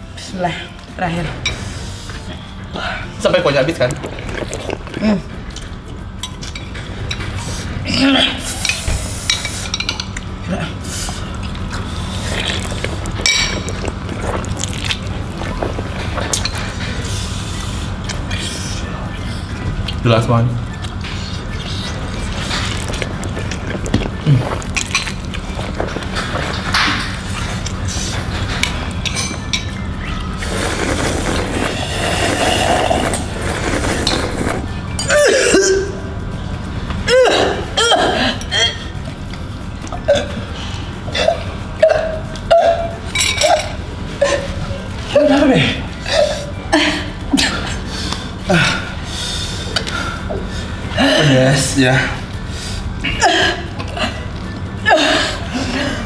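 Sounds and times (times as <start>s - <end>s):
low background music: 0.0s - 56.0s
slurping soup: 3.8s - 5.2s, 11.0s - 18.2s, 30.0s - 35.1s.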